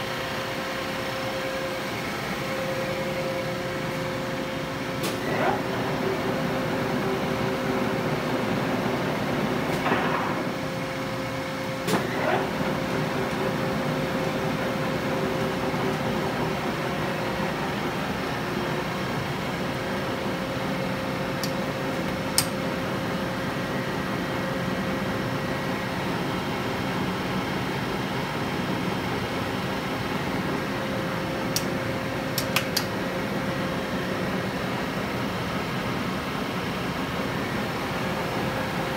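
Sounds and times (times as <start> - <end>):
lathe running with steady whine: 0.0 - 32.3
sharp mechanical clicks and knocks: 32.3 - 32.9.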